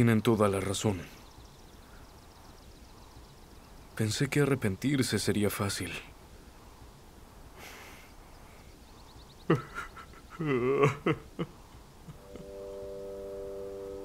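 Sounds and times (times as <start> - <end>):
catches of breath: 6.3 - 8.8
old man sobbing and wailing: 9.4 - 12.6
background music held notes: 12.1 - 14.0.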